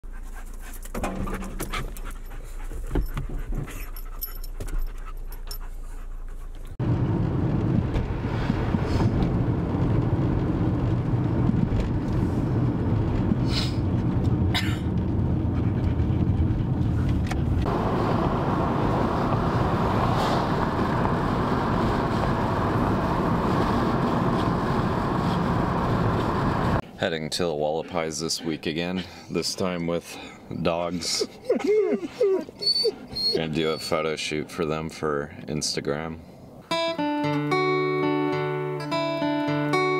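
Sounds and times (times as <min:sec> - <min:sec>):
dog panting: 0:00.0 - 0:06.8, 0:15.4 - 0:17.2, 0:27.7 - 0:29.8, 0:30.7 - 0:34.0
wind and road noise: 0:00.0 - 0:37.0.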